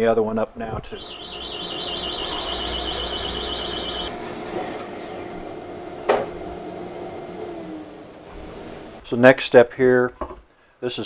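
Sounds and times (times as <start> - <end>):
high warbling squeal: 0.9 - 5.4
bandsaw cutting log: 1.0 - 7.7
dust collector running: 1.0 - 9.0.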